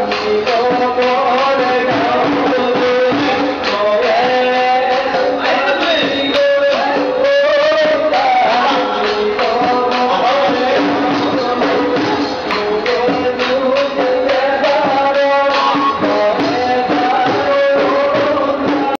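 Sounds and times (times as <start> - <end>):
percussion beat: 0.0 - 19.0
group singing: 1.9 - 6.1.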